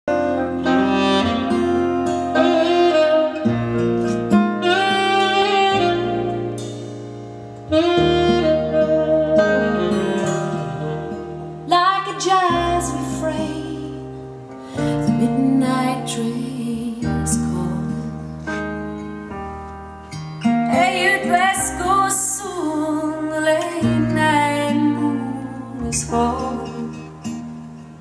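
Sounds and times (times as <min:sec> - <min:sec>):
bass line: 0:00.1 - 0:11.6
saxophone melody: 0:00.1 - 0:17.6.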